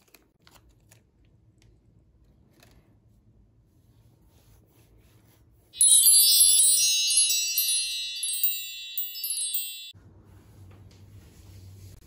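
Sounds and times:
shimmering chime tones: 0:05.8 - 0:10.0.

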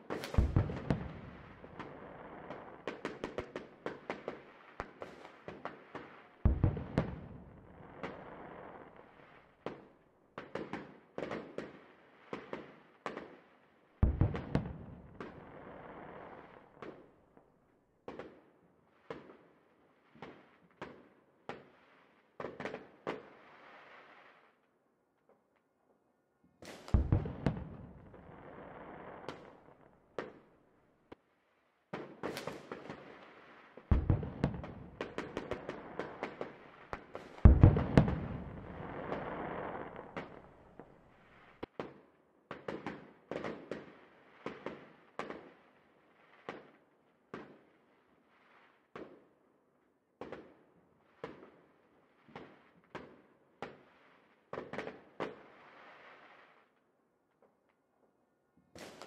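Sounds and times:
fireworks booming and crackling: 0:00.0 - 0:08.8, 0:14.0 - 0:16.9, 0:26.7 - 0:30.4, 0:31.9 - 0:41.9
sharp firework bangs: 0:00.2 - 0:01.5, 0:26.7 - 0:27.7, 0:33.9 - 0:35.5, 0:37.4 - 0:40.6.

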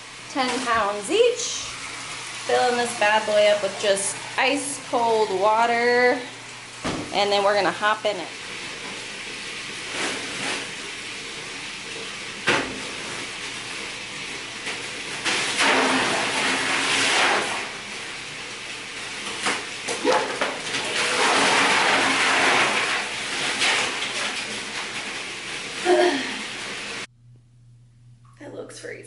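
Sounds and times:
water running into bathtub: 0:00.0 - 0:27.1
splashing and churning water: 0:14.6 - 0:18.0, 0:19.3 - 0:26.8.

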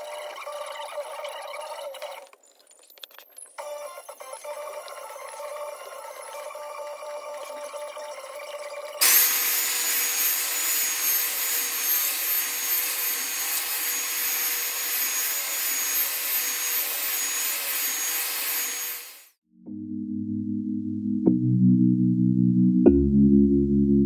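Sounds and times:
belt sander sanding wood: 0:09.0 - 0:19.3
vacuum whine: 0:09.0 - 0:19.3.

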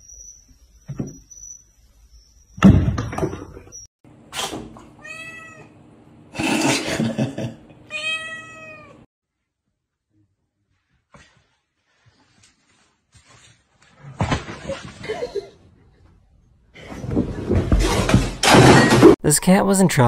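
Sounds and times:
cat meowing: 0:05.0 - 0:05.7, 0:07.9 - 0:09.0.

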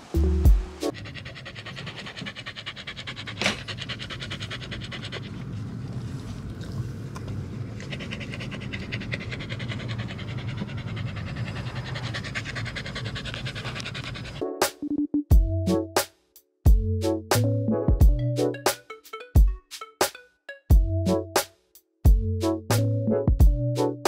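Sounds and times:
dog panting: 0:00.9 - 0:14.5.

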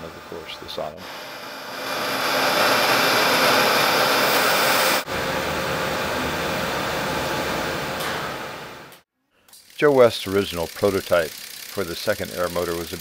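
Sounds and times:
milling machine whirring: 0:00.0 - 0:09.0.

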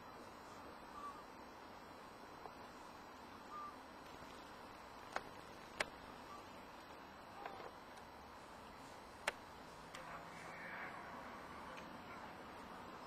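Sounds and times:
steady hiss: 0:00.0 - 0:13.0
sharp clicks: 0:05.0 - 0:06.0, 0:09.2 - 0:10.1.

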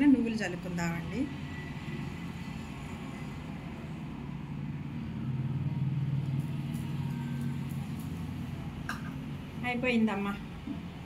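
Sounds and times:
low engine-like rumble: 0:04.1 - 0:11.0.

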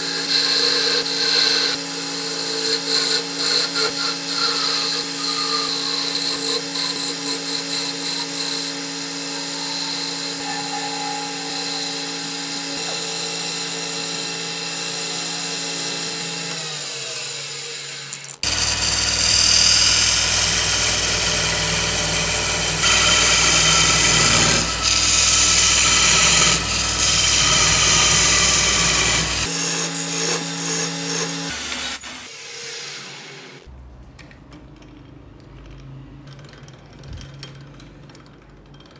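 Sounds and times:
lathe motor hum: 0:00.3 - 0:31.4.

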